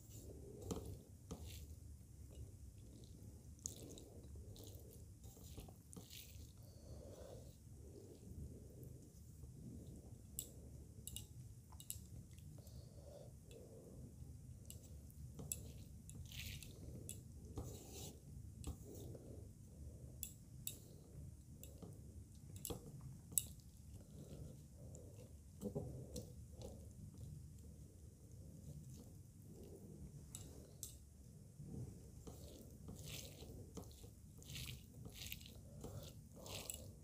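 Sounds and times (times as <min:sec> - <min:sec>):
chewing and wet mouth sounds: 0:00.2 - 0:07.1, 0:07.8 - 0:12.9, 0:32.1 - 0:37.0.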